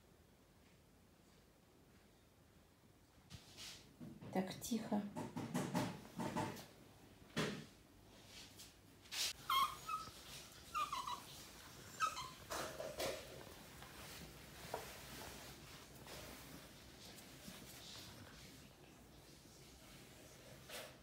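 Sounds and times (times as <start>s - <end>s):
knocks and rustles: 4.0s - 7.7s, 11.2s - 19.4s
dog whimpering: 9.4s - 13.2s.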